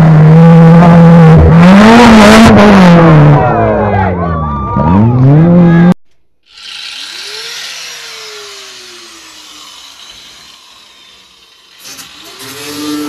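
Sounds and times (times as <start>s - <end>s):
small motor whirring: 6.4s - 13.0s.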